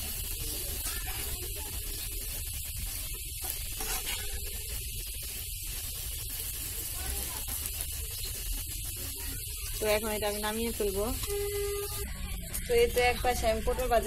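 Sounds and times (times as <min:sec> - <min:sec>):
potatoes sizzling in pan: 0:00.0 - 0:14.0
metal spatula stirring: 0:00.1 - 0:08.4.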